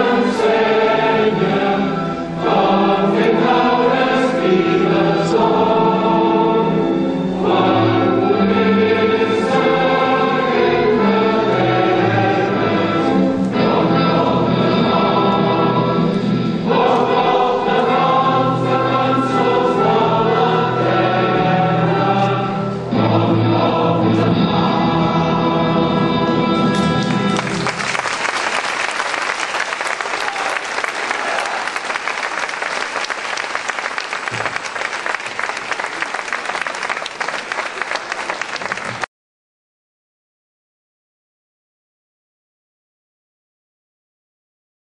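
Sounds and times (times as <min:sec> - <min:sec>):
group of people singing: 0:00.0 - 0:26.9
crowd applauding: 0:26.8 - 0:39.1.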